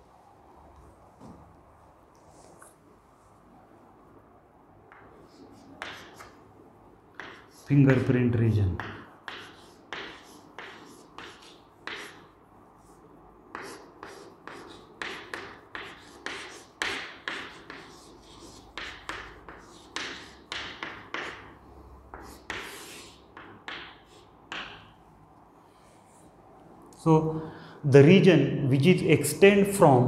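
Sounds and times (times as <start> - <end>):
chalk tapping and scraping on chalkboard: 4.9 - 6.4, 7.1 - 8.1, 8.7 - 25.0.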